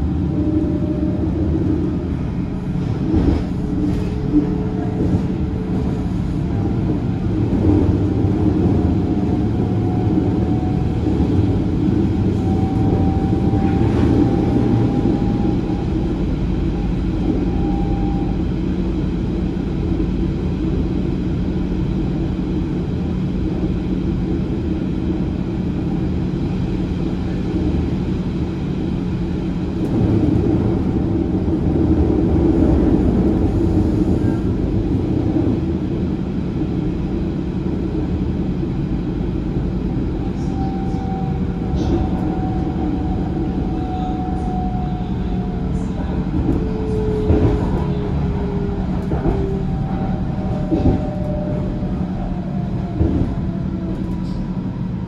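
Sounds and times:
train rumbling on track: 0.0 - 55.0
wheels clacking on rails: 40.0 - 55.0.

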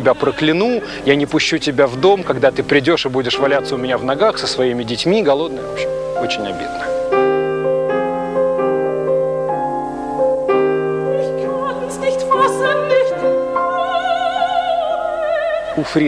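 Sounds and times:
piano chords: 0.0 - 16.0
person singing with vibrato: 11.0 - 16.0.

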